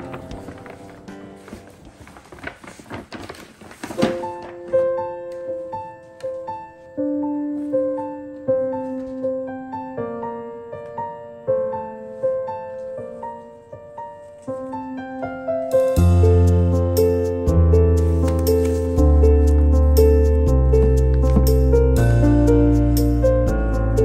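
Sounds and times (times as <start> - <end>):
paper bag rustling: 0.0 - 6.8, 17.8 - 22.1
slow piano melody: 0.0 - 24.0.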